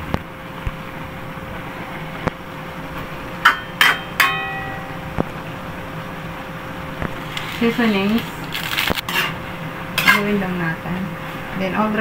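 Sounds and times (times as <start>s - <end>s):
faint hum: 0.0s - 12.0s
metal utensil striking wok: 3.4s - 5.0s, 10.0s - 10.4s.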